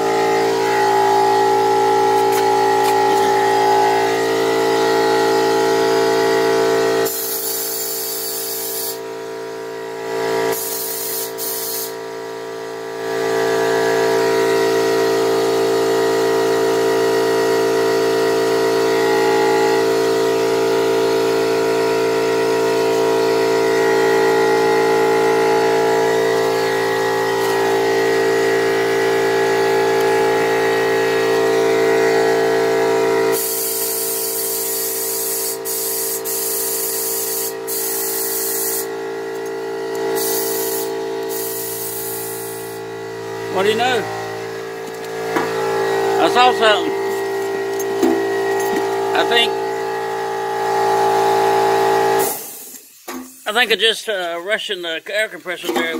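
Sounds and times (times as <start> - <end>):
air compressor motor hum: 0.0 - 53.9
air hissing: 7.0 - 9.0, 10.5 - 12.0, 33.3 - 38.9, 40.1 - 42.8, 52.2 - 53.2.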